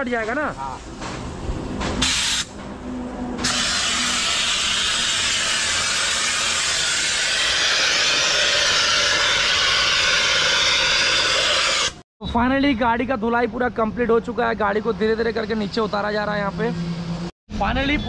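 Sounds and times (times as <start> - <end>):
pressure washer spray hissing: 2.0 - 2.5, 3.4 - 12.0.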